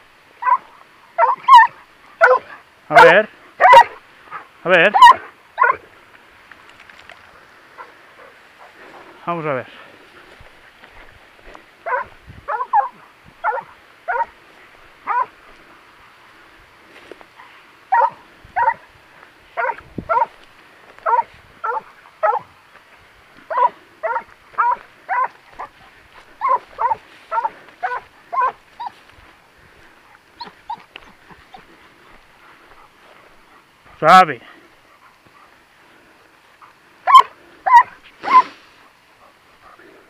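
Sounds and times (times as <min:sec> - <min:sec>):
hunting dog barking: 0:00.4 - 0:05.8, 0:07.7 - 0:08.8, 0:11.8 - 0:14.4, 0:15.0 - 0:15.4, 0:17.4 - 0:18.9, 0:19.6 - 0:20.4, 0:21.0 - 0:22.6, 0:23.4 - 0:29.0, 0:37.0 - 0:40.0.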